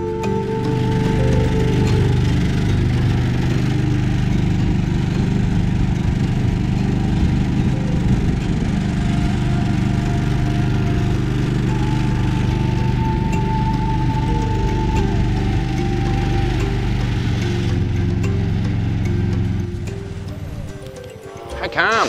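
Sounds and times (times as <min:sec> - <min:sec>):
outboard motor running: 0:00.0 - 0:22.0.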